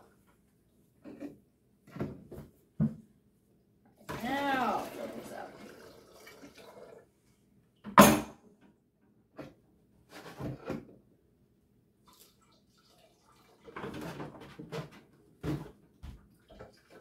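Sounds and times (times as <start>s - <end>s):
water poured into plastic jugs: 4.0s - 7.2s, 12.0s - 14.4s, 15.5s - 17.0s.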